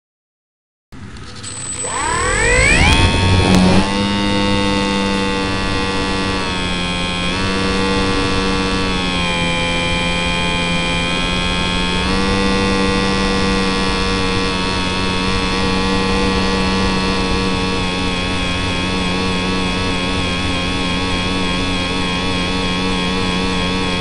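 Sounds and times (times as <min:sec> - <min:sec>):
electric motor and propeller whine: 0:01.0 - 0:24.0.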